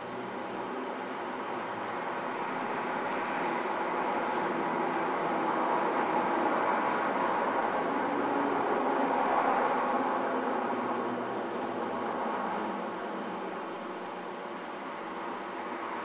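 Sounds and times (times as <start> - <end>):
passing vehicle rush: 1.7 - 13.9.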